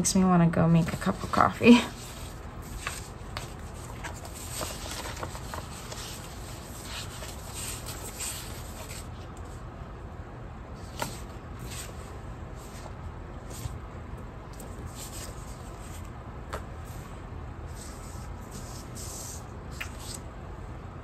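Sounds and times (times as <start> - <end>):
steady low hum: 0.0 - 21.0
paper sheets rustling and sliding: 0.8 - 9.6, 10.8 - 13.8, 14.6 - 16.1, 17.7 - 20.2.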